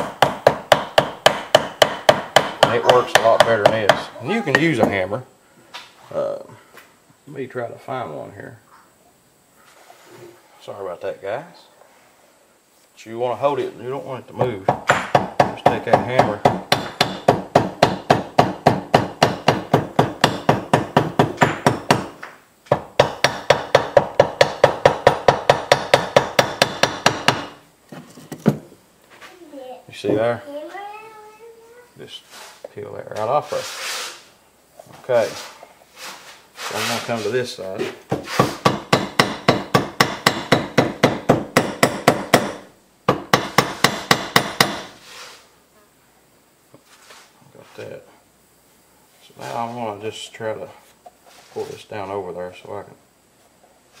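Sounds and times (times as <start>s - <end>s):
hammer tapping rapidly: 0.0s - 4.1s, 22.7s - 27.6s, 38.6s - 44.9s.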